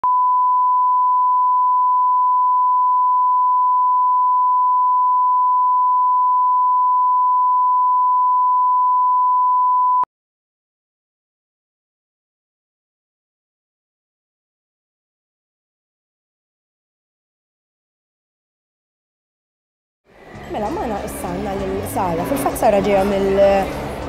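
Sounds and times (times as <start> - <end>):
steady test tone beep: 0.0 - 10.1.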